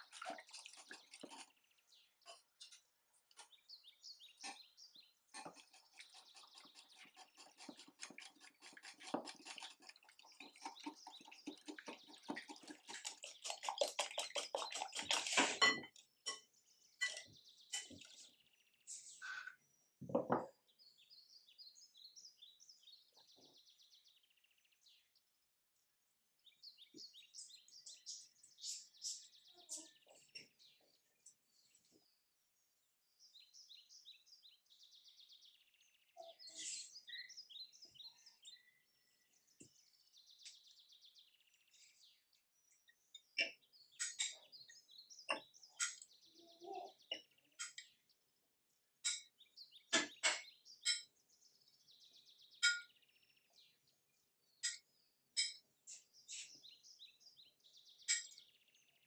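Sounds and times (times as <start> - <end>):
small birds chirping: 0.0 - 59.0
fast scraping or tapping strokes: 5.3 - 15.6.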